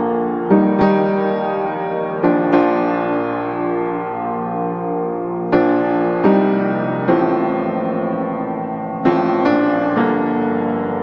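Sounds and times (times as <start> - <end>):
slow piano piece: 0.0 - 11.0.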